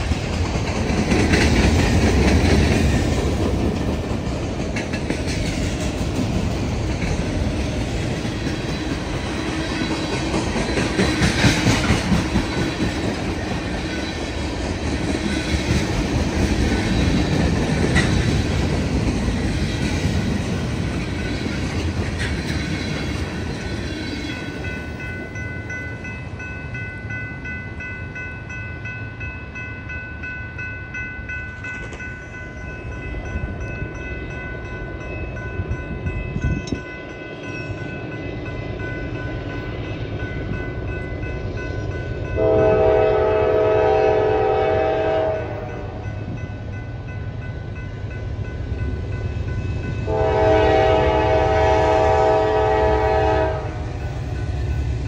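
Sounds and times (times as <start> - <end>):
locomotive air horn blasts: 42.4 - 46.0, 50.0 - 53.8.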